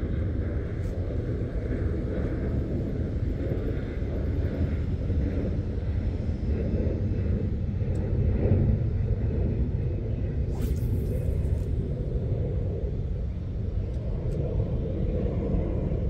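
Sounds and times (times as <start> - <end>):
low outdoor rumble: 0.0 - 16.0
fishing rod cast whoosh: 10.5 - 12.2.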